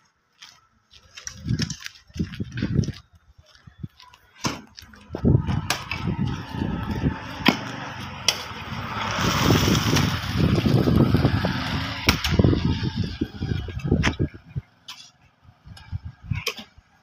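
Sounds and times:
busy street din: 0.3 - 17.0
vehicle passing: 5.1 - 14.1.

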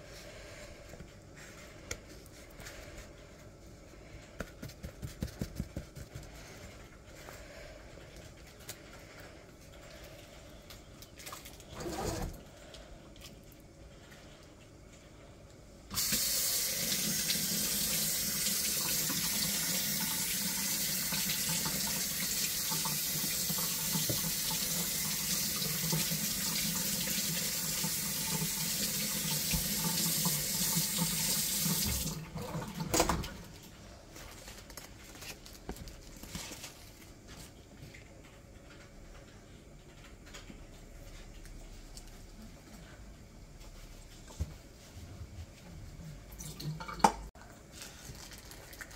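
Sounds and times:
tap water running into sink: 15.9 - 33.4.

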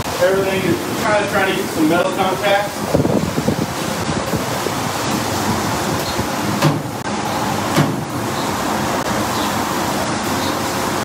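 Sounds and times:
wind on microphone: 2.6 - 7.1.

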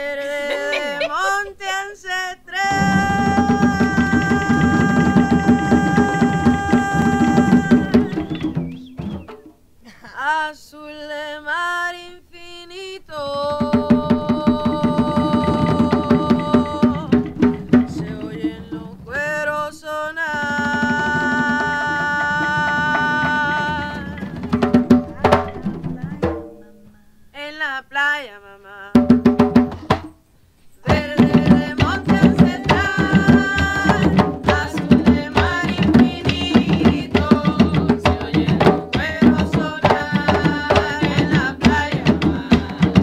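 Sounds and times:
woman singing: 0.0 - 8.6, 9.9 - 26.4, 27.4 - 29.1, 30.8 - 43.0
hand-played barrel drums: 2.7 - 9.7, 13.3 - 27.1, 29.0 - 30.2, 30.8 - 43.0.

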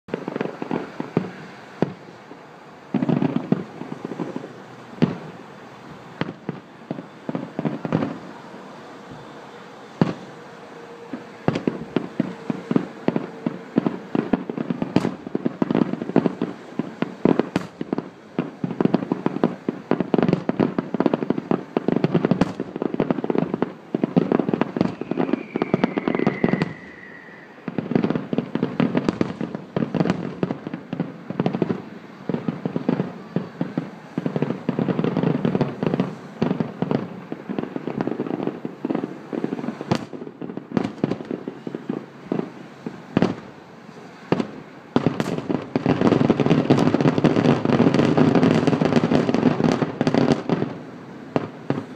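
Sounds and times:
falling firework whistle: 0.1 - 51.9
fireworks bursts and bangs: 0.1 - 51.9.

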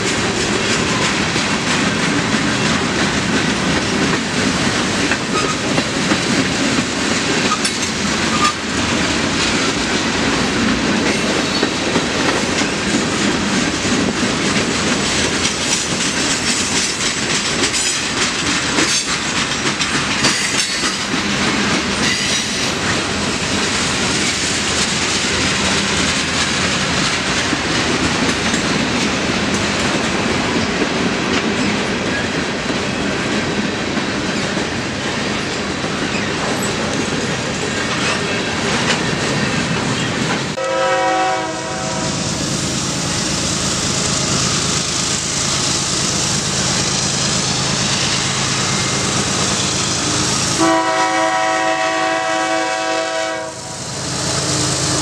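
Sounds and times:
freight train wheels clattering: 0.0 - 55.0
train horn: 40.6 - 42.2, 50.6 - 53.9.

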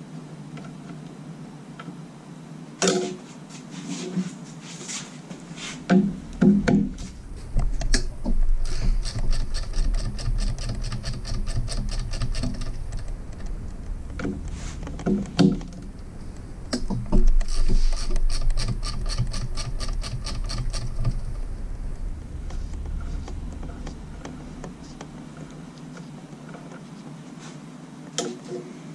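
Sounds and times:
ratcheting wrench clicking: 8.6 - 13.5, 17.3 - 21.3.

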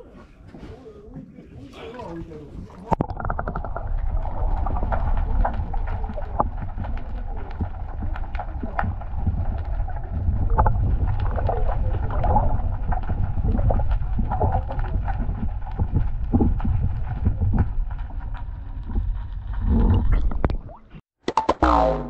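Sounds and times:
underwater water rumble: 0.0 - 21.0
water gurgling: 1.0 - 21.0.

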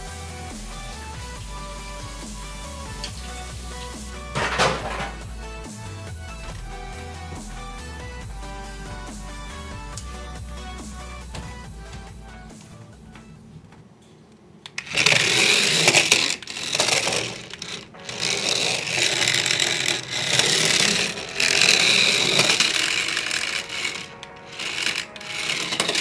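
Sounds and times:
toy gear motor whirring: 0.0 - 4.8, 14.8 - 26.0
background music: 0.0 - 13.6, 14.8 - 26.0.

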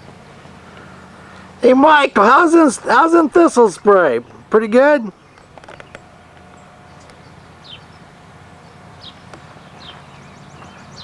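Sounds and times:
birds chirping: 0.0 - 11.0
steady low hum: 0.0 - 11.0
bird trill: 5.1 - 11.0.

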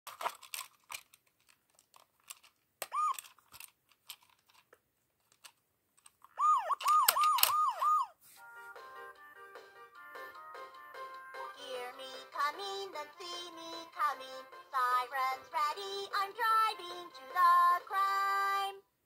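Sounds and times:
plastic toy clicks and rattles: 0.1 - 7.8
toy police siren wailing: 2.9 - 3.2, 6.4 - 8.2.

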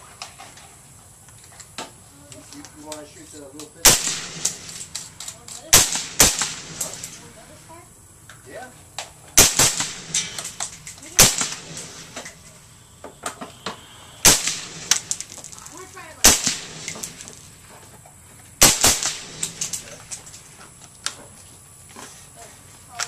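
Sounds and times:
suppressed rifle shots: 3.8 - 7.3, 9.4 - 12.5, 14.2 - 15.4, 16.2 - 17.4, 18.6 - 20.2.

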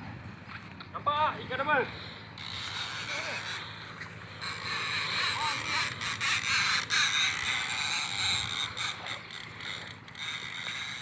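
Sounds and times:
fishing reel ratcheting and clicking: 2.4 - 3.7, 4.4 - 11.0.

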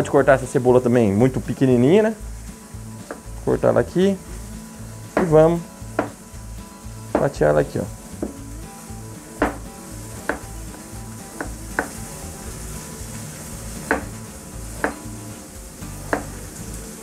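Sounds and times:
steak sizzling in a skillet: 0.0 - 17.0
knife chopping on plastic board: 5.2 - 5.4, 6.0 - 6.2, 7.1 - 7.4, 9.4 - 9.6, 10.2 - 10.5, 11.4 - 12.0, 13.9 - 14.2, 16.1 - 16.4.

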